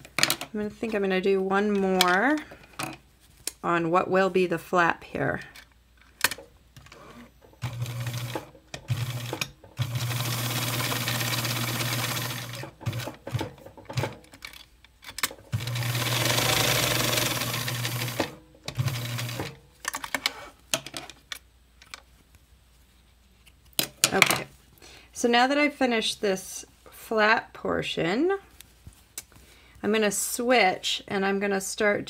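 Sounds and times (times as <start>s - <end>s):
sewing machine stitching: 7.0s - 14.2s, 15.5s - 19.6s.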